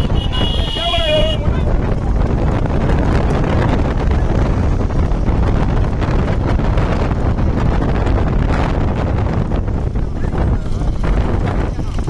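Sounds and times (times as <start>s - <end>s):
low steady rumble: 0.0s - 12.0s
wind buffeting microphone: 0.0s - 12.0s.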